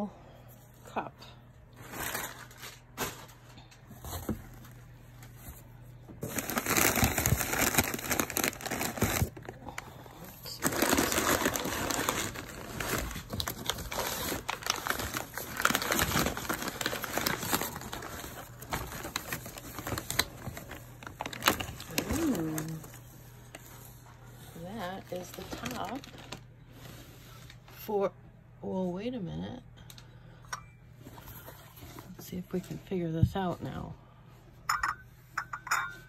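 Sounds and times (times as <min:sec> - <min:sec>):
packing paper crinkling: 0:01.7 - 0:03.8, 0:04.6 - 0:24.0, 0:24.7 - 0:26.5.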